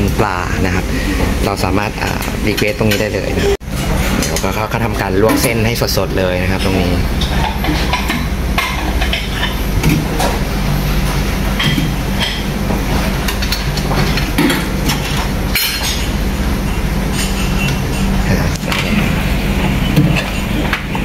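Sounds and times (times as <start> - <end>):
low hum: 0.0 - 21.0
dishes and cutlery clinking: 6.6 - 10.4, 11.6 - 16.2, 17.1 - 19.0.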